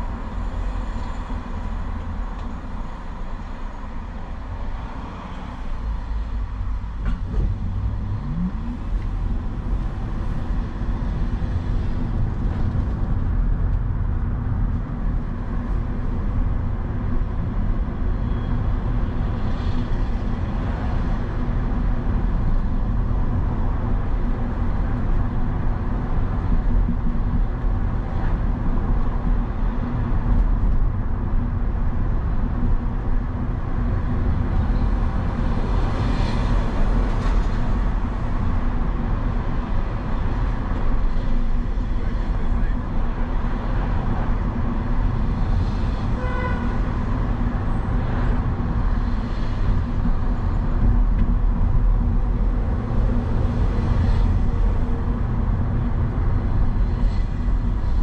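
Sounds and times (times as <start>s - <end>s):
road and traffic noise: 0.0s - 58.0s.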